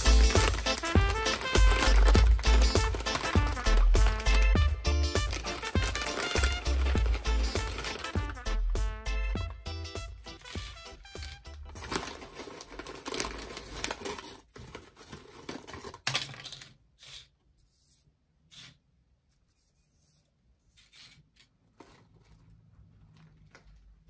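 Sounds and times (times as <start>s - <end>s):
chips and bag crackling: 0.0s - 8.4s, 10.3s - 16.7s.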